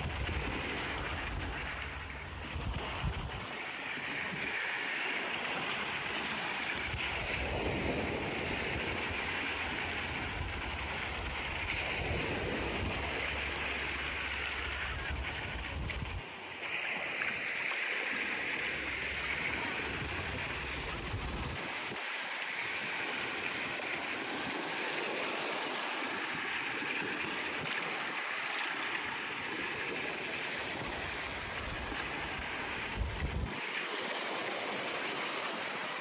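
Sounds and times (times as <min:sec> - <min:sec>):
small waves washing on shore: 0:00.0 - 0:36.0
wind buffeting microphone: 0:00.0 - 0:36.0.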